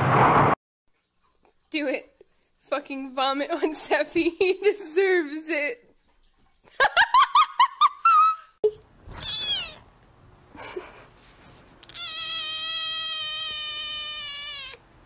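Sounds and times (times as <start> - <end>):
cat chirping: 9.1 - 9.8, 11.8 - 14.8
kitten meowing: 9.1 - 9.8, 11.8 - 14.8.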